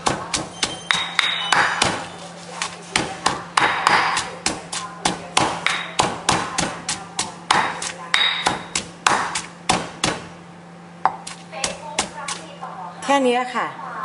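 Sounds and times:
pestle pounding in stone mortar: 0.0s - 10.4s, 11.0s - 12.5s.

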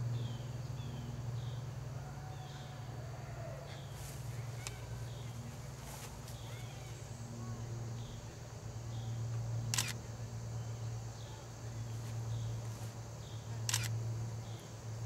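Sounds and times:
steady low hum: 0.0s - 15.0s
camera shutter clicks: 9.7s - 10.0s, 13.7s - 14.0s.

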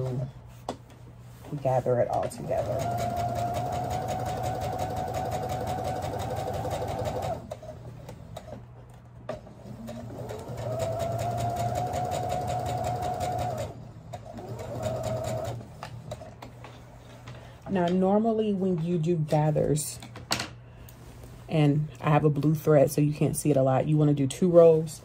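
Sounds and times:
sewing machine stitching: 2.2s - 8.6s, 9.3s - 16.4s.

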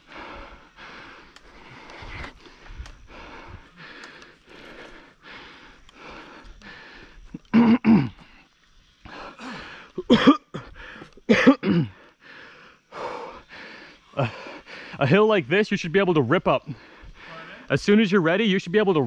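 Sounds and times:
man panting: 0.0s - 15.1s, 16.6s - 17.7s
man coughing hoarsely: 7.4s - 8.2s, 10.0s - 10.6s, 11.3s - 12.0s.

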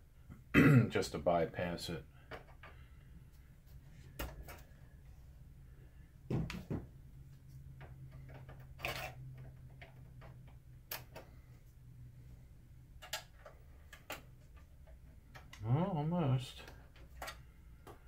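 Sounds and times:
low steady hum: 0.0s - 18.0s
screwdriver and plastic parts clicking: 16.7s - 18.0s.

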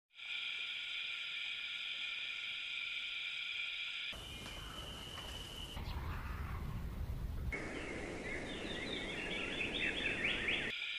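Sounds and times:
insect chorus drone: 0.1s - 10.9s
outdoor ambience: 0.1s - 10.9s.

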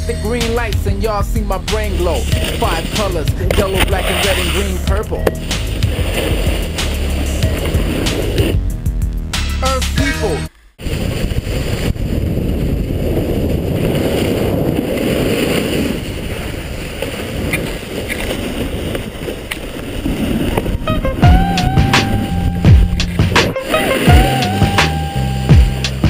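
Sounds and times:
wind on microphone: 0.0s - 8.7s, 10.8s - 24.8s
music: 0.0s - 10.5s, 20.8s - 26.0s
snowboard scraping over snow: 0.1s - 8.7s, 10.8s - 26.0s.

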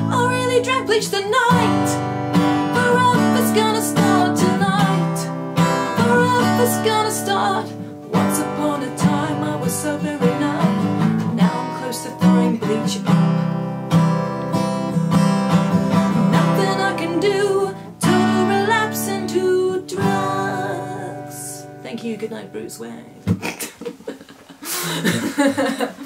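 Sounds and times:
strummed acoustic guitar chords: 0.0s - 21.8s
person singing: 2.7s - 13.2s, 16.3s - 21.6s.

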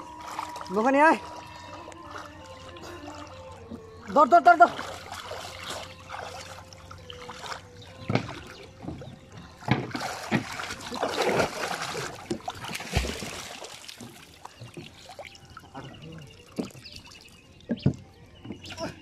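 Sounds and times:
water splashing from wading: 0.0s - 19.0s
knocks on wooden boat: 8.0s - 10.6s.

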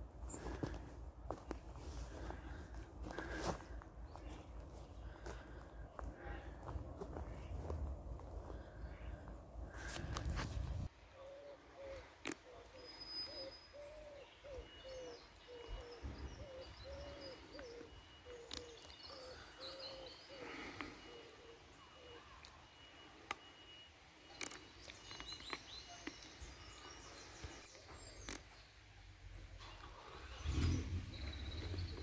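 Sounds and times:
low arched bird call: 8.4s - 28.3s
high chirps of small birds: 11.9s - 22.6s.

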